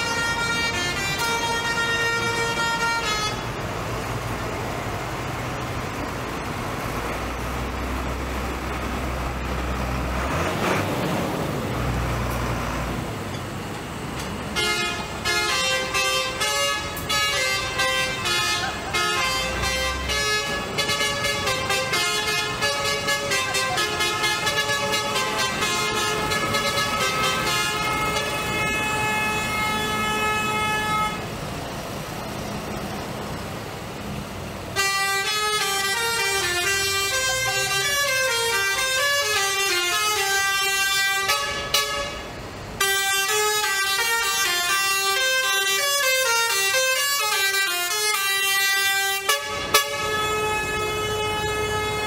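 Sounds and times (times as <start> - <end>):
tractor horns honking: 0.0 - 4.6, 13.2 - 31.6, 34.6 - 52.0
tractor engines driving past: 0.0 - 52.0.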